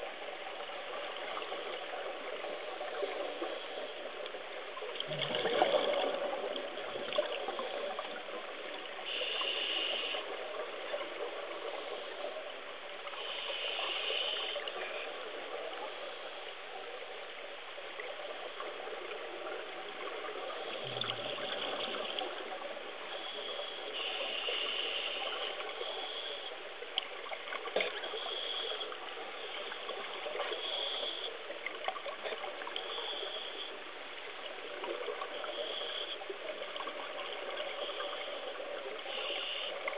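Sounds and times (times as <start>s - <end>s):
underwater water noise: 0.0s - 39.9s
high hiss: 9.0s - 10.6s, 13.1s - 15.0s, 23.0s - 26.7s, 28.0s - 31.5s, 37.4s - 39.9s.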